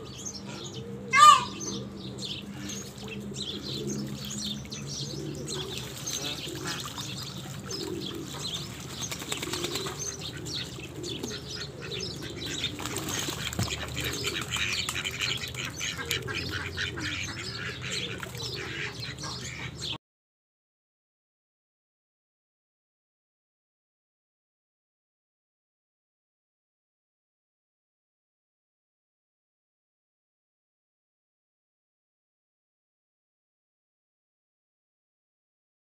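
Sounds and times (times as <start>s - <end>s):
pigeons cooing: 0.0s - 20.0s
small birds chirping: 0.0s - 20.0s
duck splashing and wing-flapping: 5.6s - 11.4s, 12.3s - 19.6s.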